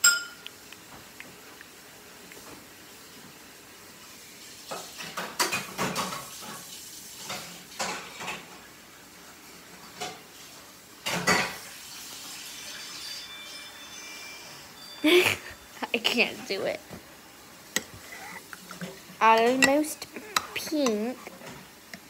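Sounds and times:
dishes and utensils clinking: 0.0 - 0.5, 4.7 - 6.6, 7.2 - 8.6, 11.0 - 11.6, 12.3 - 16.6, 17.7 - 21.6.

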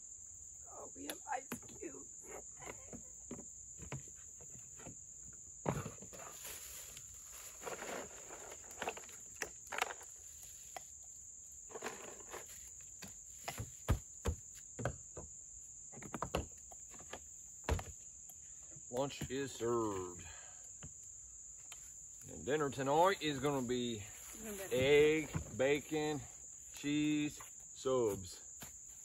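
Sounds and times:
high-pitched insect chorus: 0.0 - 29.0
camp cookware clicks and rustles: 7.5 - 11.0, 11.6 - 12.5.

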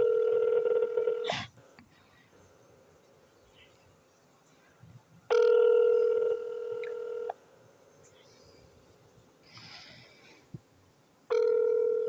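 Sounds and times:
telephone ringback tone: 0.0 - 1.3, 5.3 - 7.3, 11.3 - 12.0.

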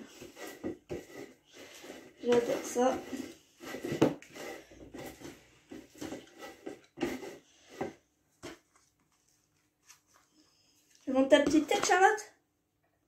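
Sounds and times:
pastry brush scraping dish: 0.0 - 8.6.

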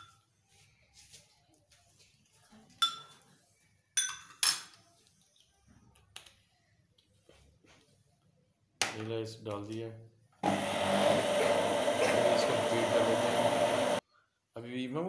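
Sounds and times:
metal spoon clinking on glass: 2.8 - 3.2, 4.0 - 4.8.

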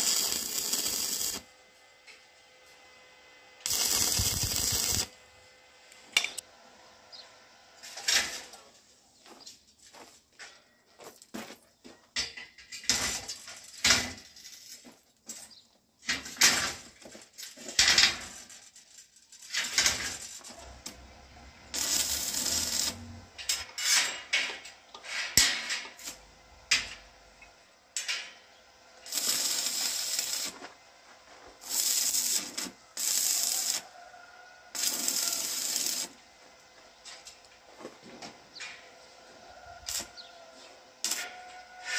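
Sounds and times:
arc welding crackle: 0.0 - 1.5, 3.6 - 5.2, 12.8 - 15.5, 16.1 - 24.2, 25.3 - 27.4, 29.0 - 36.2, 39.7 - 41.9.

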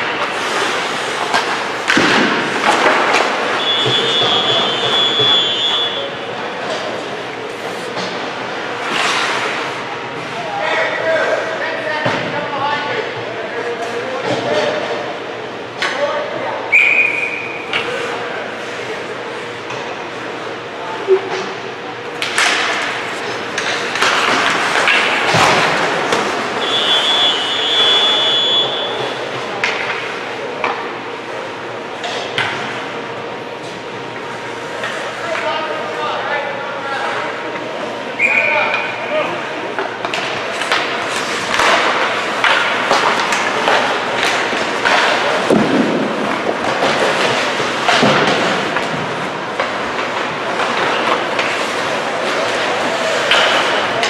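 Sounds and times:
skates scraping ice: 0.1 - 5.7, 6.7 - 9.8, 22.2 - 26.8
hockey sticks clacking on puck: 0.1 - 6.0, 22.2 - 26.8, 29.0 - 30.9, 39.7 - 54.0
referee's whistle: 3.6 - 6.1, 16.7 - 17.6, 26.6 - 29.0, 38.2 - 38.8.

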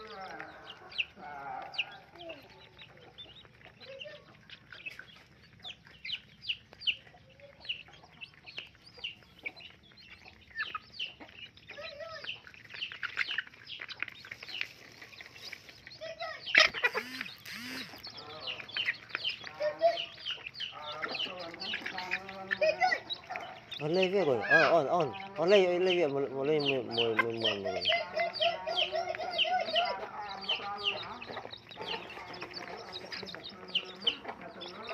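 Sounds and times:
chicks peeping and cheeping: 0.0 - 34.9
chick squawk: 16.3 - 25.3.

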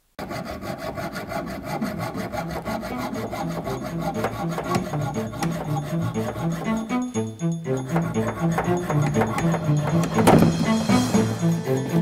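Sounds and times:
hacksaw cutting metal pipe: 0.2 - 11.8.

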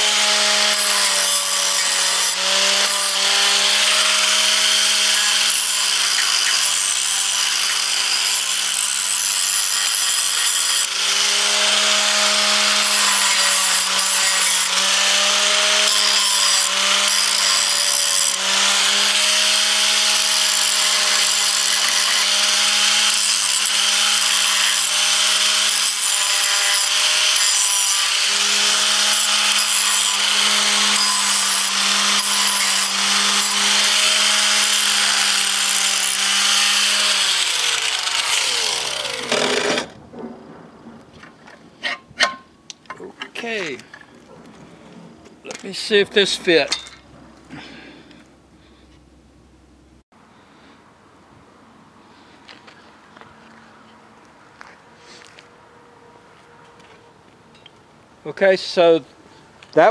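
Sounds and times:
power tool motor on metal: 0.0 - 39.9.

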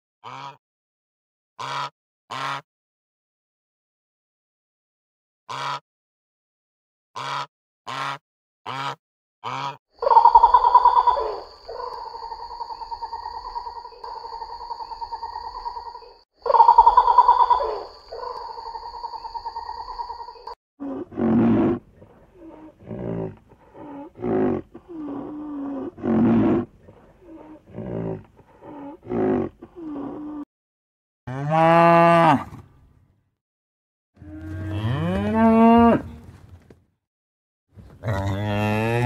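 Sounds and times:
loud drawn-out animal call: 7.2 - 30.5
short lower animal calls: 9.6 - 20.2.

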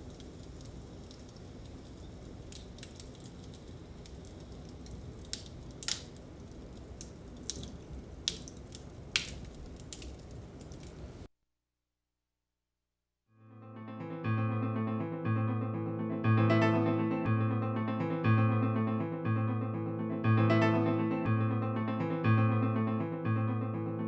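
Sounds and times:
wood fire crackling and popping: 0.0 - 11.3.

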